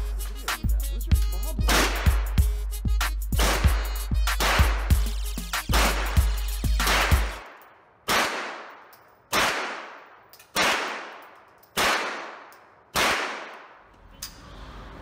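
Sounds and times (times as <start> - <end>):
rifle shots echoing indoors: 6.8 - 13.9.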